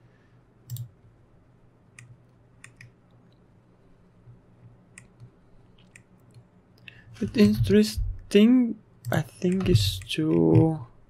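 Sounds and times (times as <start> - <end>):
faint low hum: 0.0 - 11.0
computer mouse and key clicks: 0.7 - 1.0, 2.0 - 3.4, 4.3 - 7.8, 9.0 - 10.8.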